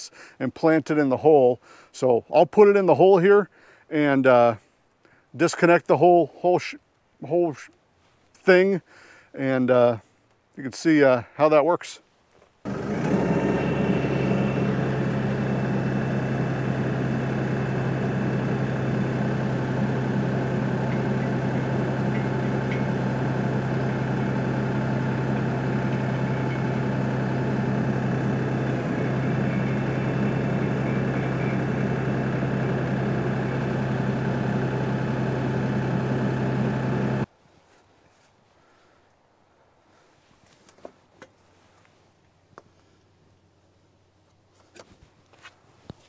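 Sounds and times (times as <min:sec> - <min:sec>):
tractor diesel engine running: 0:12.7 - 0:37.3.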